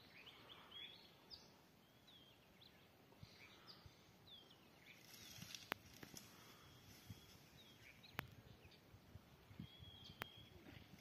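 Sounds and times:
faint bird chirps and whistles: 0:06.5 - 0:08.8, 0:09.5 - 0:11.0.

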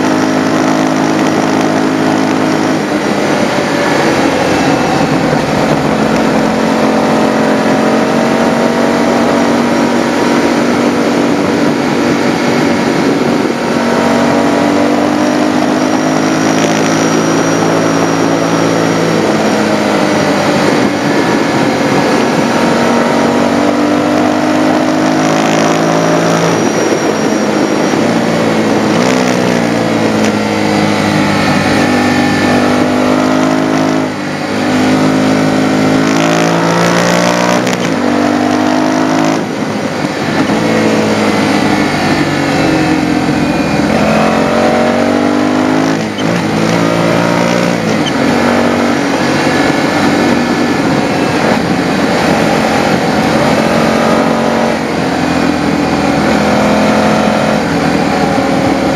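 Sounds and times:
motorcycle engine revving: 0:00.0 - 0:58.9
wind noise: 0:00.0 - 0:58.9.

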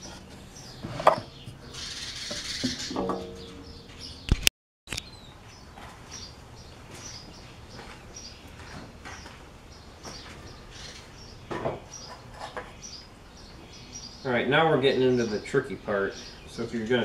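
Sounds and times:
wood scraping: 0:00.0 - 0:03.3, 0:12.0 - 0:12.8.

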